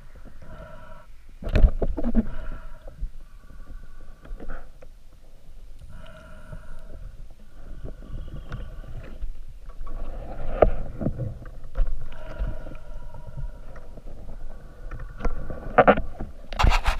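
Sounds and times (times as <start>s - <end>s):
underwater rumble of moving water: 0.0s - 16.6s.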